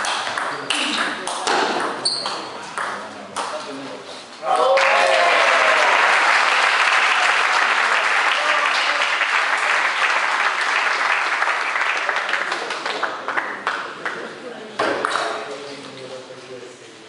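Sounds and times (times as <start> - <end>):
crowd applauding: 4.6 - 14.2.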